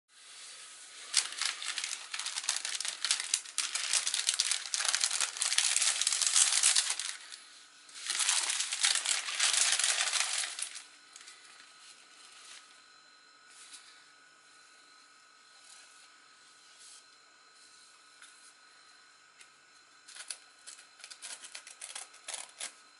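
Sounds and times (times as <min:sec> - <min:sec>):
plastic packaging crinkling: 0:00.9 - 0:11.7.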